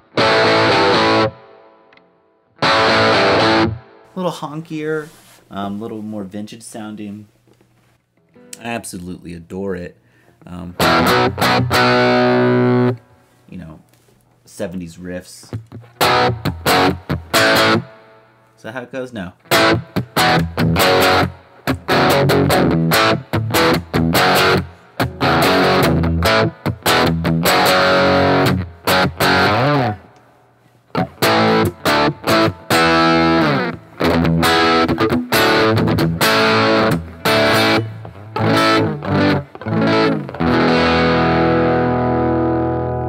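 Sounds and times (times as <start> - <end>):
overdriven electric guitar riff: 0.0 - 4.1, 10.7 - 13.1, 15.5 - 18.3, 19.4 - 30.3, 30.9 - 43.0.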